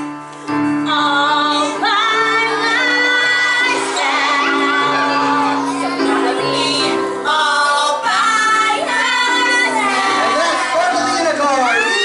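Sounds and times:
woman singing: 0:00.8 - 0:10.0.

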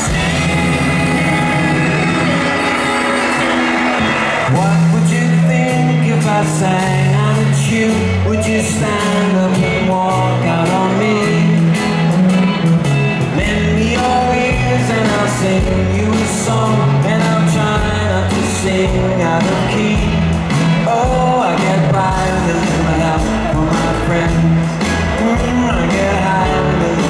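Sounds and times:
bass line: 0:00.0 - 0:27.0
drums: 0:00.0 - 0:27.0
electric guitars: 0:00.0 - 0:27.0
person singing: 0:00.0 - 0:27.0.

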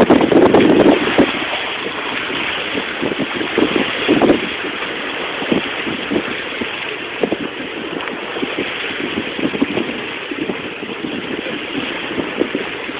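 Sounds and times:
wind and water rushing: 0:00.0 - 0:12.9.

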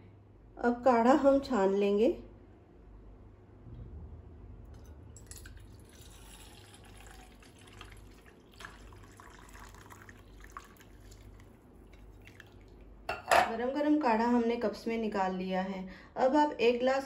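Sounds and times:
liquid trickling into bowl: 0:04.8 - 0:12.9
sharp drips: 0:05.2 - 0:12.8.

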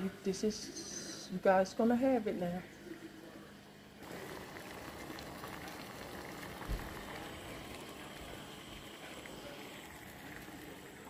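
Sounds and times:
liquid bubbling at a boil: 0:02.7 - 0:11.0.

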